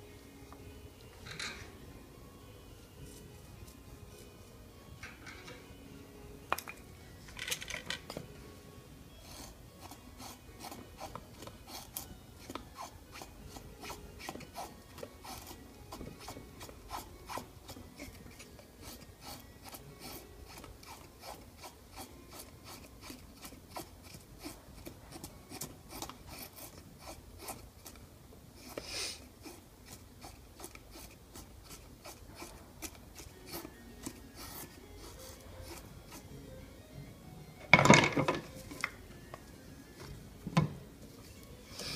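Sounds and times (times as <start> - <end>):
knife shaving wooden stick: 9.2 - 36.3.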